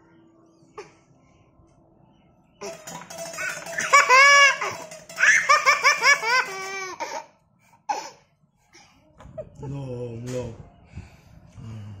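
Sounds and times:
toddler laughing: 3.3 - 7.3.

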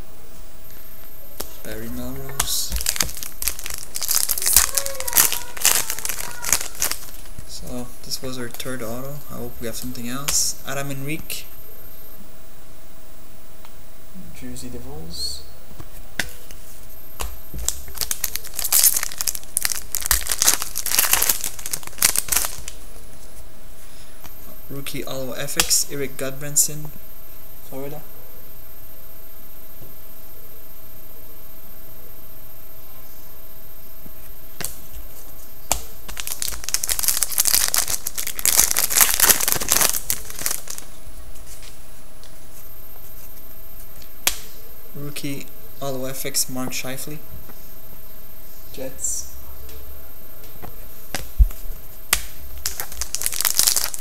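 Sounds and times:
foil wrapper tearing and crinkling: 2.7 - 7.3, 17.6 - 22.8, 36.1 - 40.9, 52.6 - 54.0.

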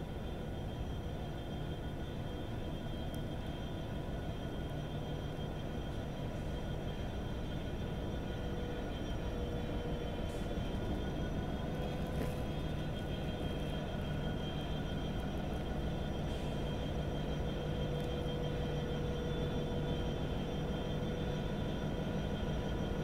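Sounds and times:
locomotive engine hum: 0.0 - 23.0.

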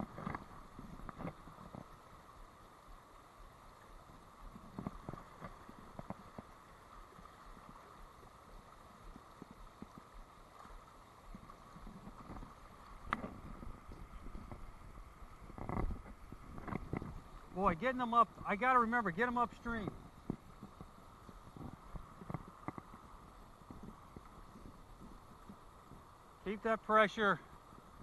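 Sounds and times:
fast stream rushing: 0.0 - 28.0
light knocks and taps: 12.2 - 13.4, 22.2 - 23.1.

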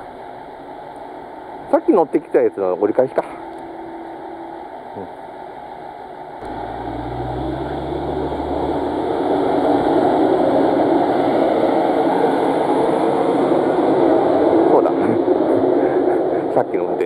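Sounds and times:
railcar rumbling on rails: 0.0 - 17.0
diesel engine drone: 6.3 - 17.0.

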